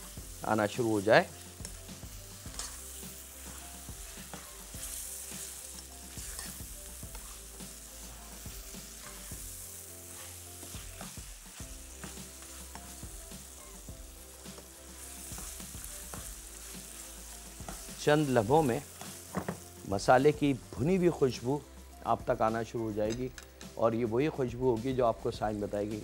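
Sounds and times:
meat sizzling in a wok: 0:00.0 - 0:23.8
spatula scraping and knocking pan: 0:01.6 - 0:07.6, 0:08.2 - 0:13.2.

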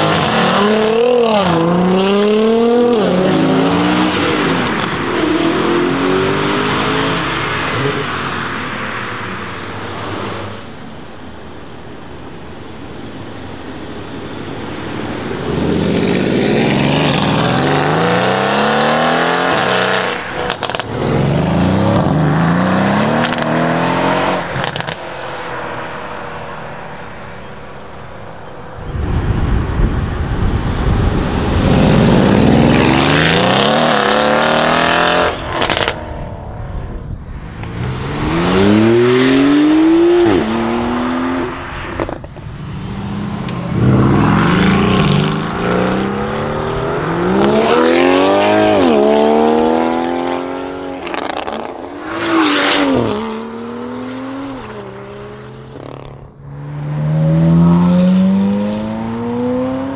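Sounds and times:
car engine accelerating: 0:14.2 - 0:59.9.

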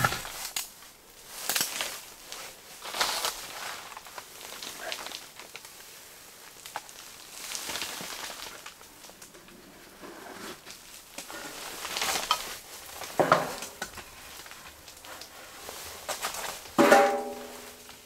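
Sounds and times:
wood being handled: 0:00.0 - 0:00.6
fire crackling and hissing: 0:00.0 - 0:16.8.

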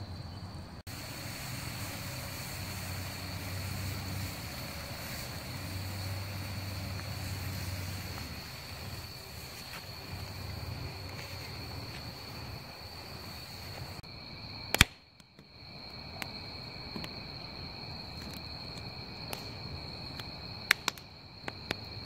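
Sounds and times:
night insects chorus: 0:00.0 - 0:22.0
low rumble: 0:00.8 - 0:14.0
campfire pops: 0:00.9 - 0:17.2, 0:18.0 - 0:22.0.

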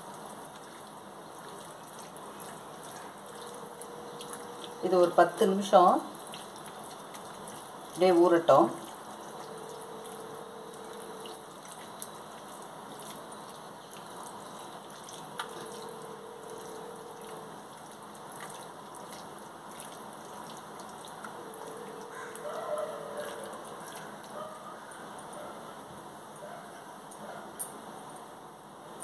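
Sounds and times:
wet squishing of kneading meat: 0:00.0 - 0:25.0
faint hum: 0:02.2 - 0:18.1.

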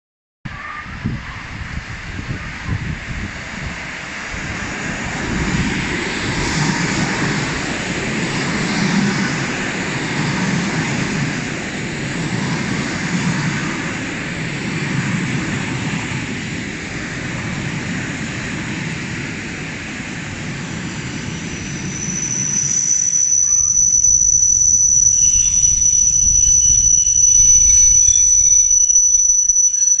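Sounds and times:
high-pitched train whine: 0:00.5 - 0:30.0
train wheels rumbling on rails: 0:01.0 - 0:30.0.

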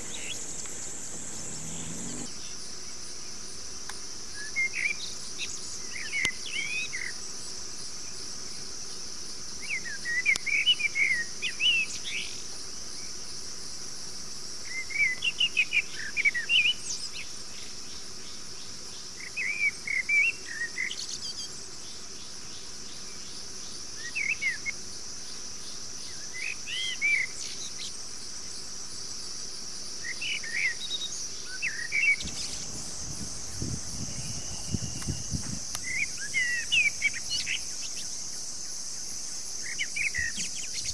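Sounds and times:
bird chirping: 0:00.0 - 0:02.5
insects droning: 0:00.0 - 0:40.9
faint low rustle: 0:32.2 - 0:35.8.

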